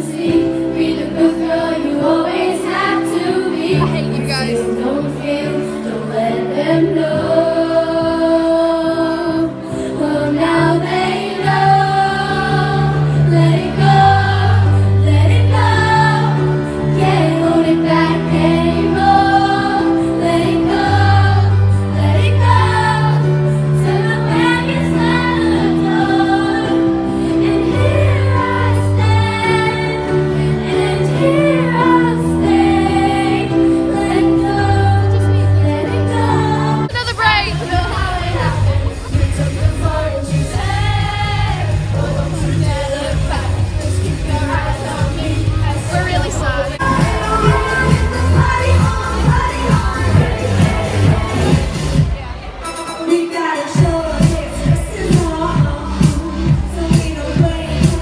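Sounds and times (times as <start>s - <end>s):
woman singing into microphone: 0.0s - 19.5s, 34.0s - 58.0s
pop backing music with bass: 0.0s - 58.0s.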